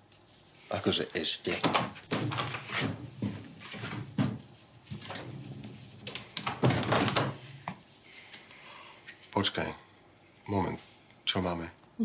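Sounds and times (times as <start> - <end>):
door knocks and clunks: 6.5 - 7.4.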